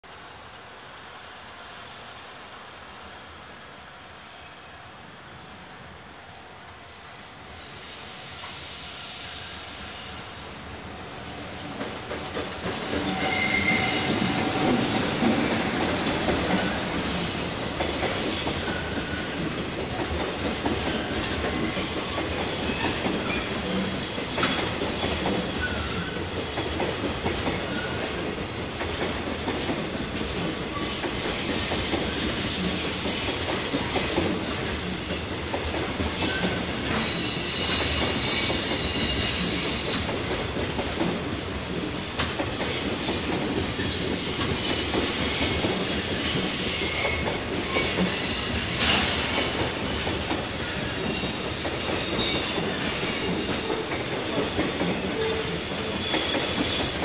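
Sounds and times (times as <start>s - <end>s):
freight train rolling on rails: 0.0s - 57.0s
wheel squeals: 13.0s - 14.9s, 21.0s - 26.2s, 44.3s - 50.3s.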